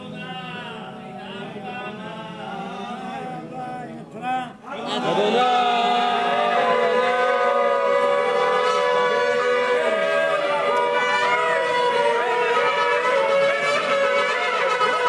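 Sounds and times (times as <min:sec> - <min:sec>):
shofars blowing long notes: 0:05.7 - 0:15.0.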